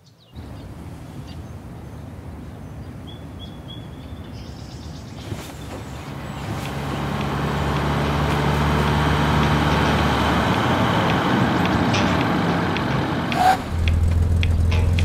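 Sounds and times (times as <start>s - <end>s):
road rumble: 0.4s - 15.0s
car engine approaching: 5.2s - 15.0s.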